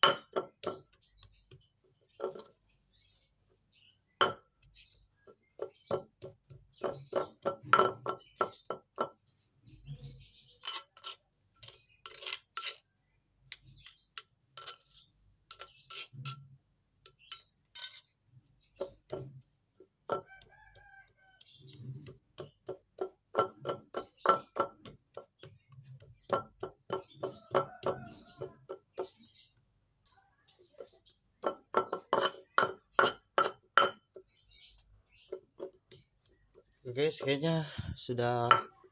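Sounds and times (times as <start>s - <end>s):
pestle knocking in stone mortar: 0.0s - 2.6s, 4.2s - 4.8s, 5.4s - 9.2s, 22.0s - 29.2s, 30.8s - 34.3s, 38.4s - 38.8s.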